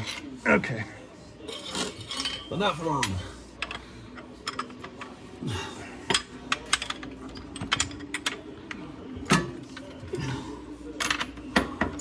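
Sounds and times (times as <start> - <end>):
metal parts and tools clinking: 1.5 - 3.8, 6.1 - 9.9.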